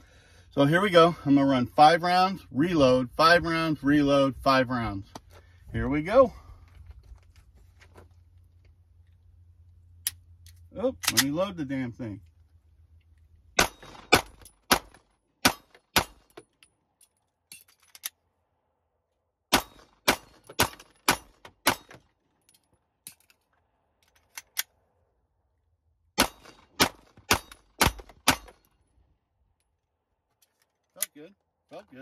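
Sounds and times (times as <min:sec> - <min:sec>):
magazine change clicks: 0:10.0 - 0:11.4
pistol shots: 0:13.6 - 0:16.4, 0:19.5 - 0:22.0, 0:26.2 - 0:28.6.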